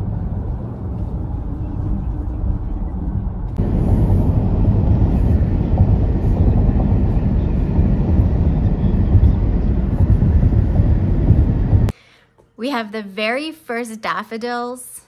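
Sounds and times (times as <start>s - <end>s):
car road noise hum: 0.0s - 11.9s
wind buffeting microphone: 0.0s - 11.9s.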